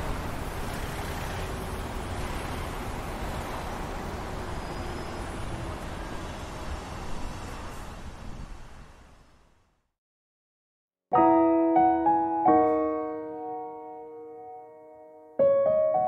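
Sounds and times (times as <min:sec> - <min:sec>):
steady rushing traffic noise: 0:00.0 - 0:09.8.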